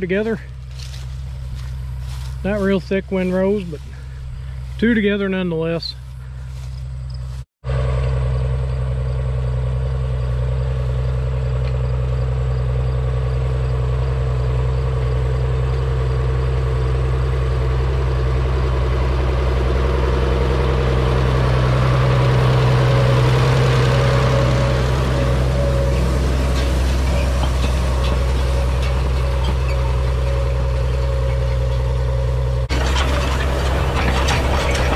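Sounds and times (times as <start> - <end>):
tractor diesel engine running: 0.0 - 34.9.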